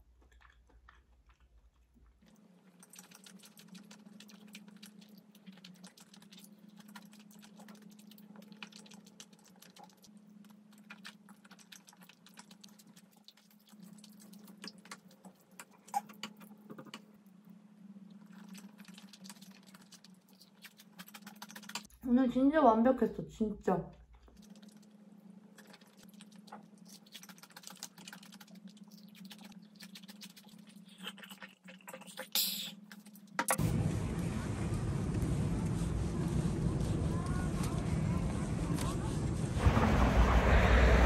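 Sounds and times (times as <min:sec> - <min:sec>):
faint low hum: 0:00.0 - 0:41.0
wet mouth chewing clicks: 0:18.3 - 0:21.9, 0:25.6 - 0:33.2.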